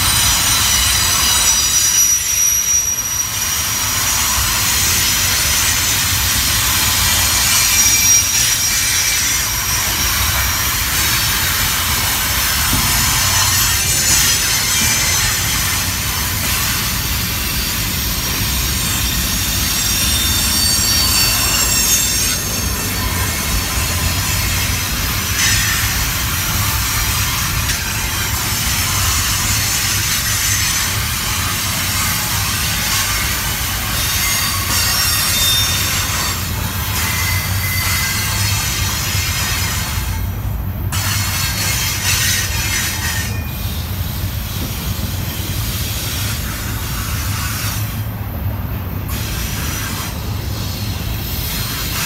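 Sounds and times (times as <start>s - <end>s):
high-pitched wheel squeal: 0.0s - 26.6s, 28.9s - 40.3s, 41.0s - 48.0s
train wheels rumbling on rail: 0.0s - 52.0s.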